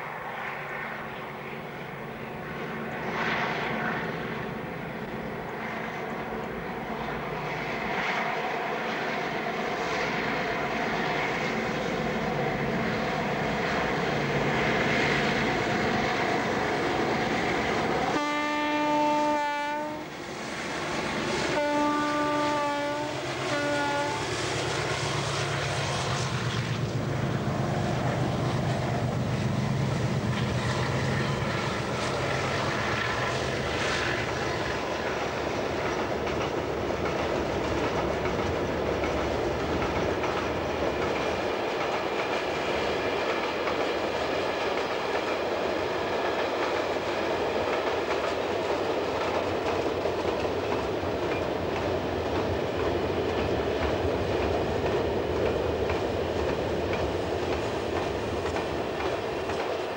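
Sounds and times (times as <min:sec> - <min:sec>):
train wheels clattering on rails: 0:20.1 - 0:59.9.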